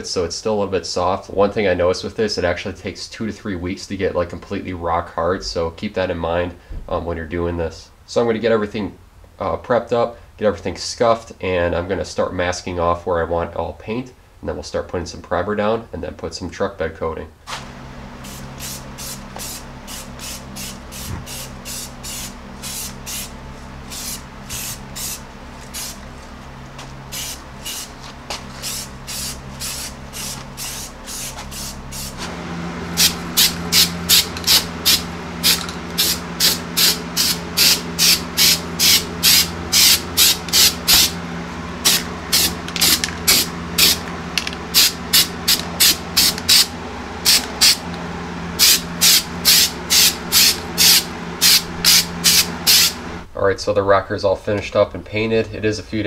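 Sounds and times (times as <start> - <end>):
aerosol spray can bursts: 18.2 - 23.3, 23.9 - 26.0, 27.1 - 32.2, 33.0 - 41.1, 41.8 - 44.0, 44.7 - 47.8, 48.6 - 53.0.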